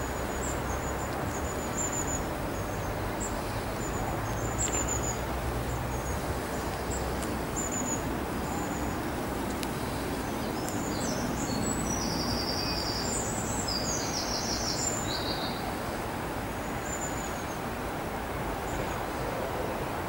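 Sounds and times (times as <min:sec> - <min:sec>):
songbird trills and chirps: 0:00.0 - 0:15.8.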